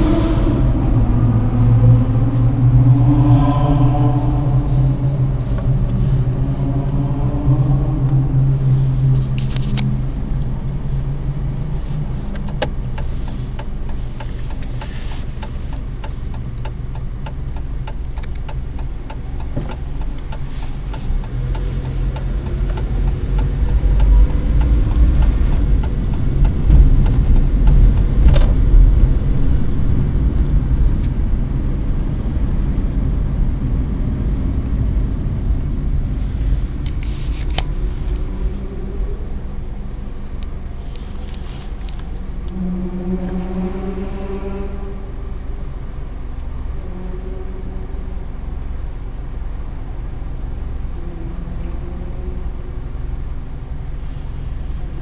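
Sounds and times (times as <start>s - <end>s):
car engine running: 0.0s - 55.0s
road and tyre noise: 0.0s - 55.0s
quick regular ticks: 12.3s - 28.5s.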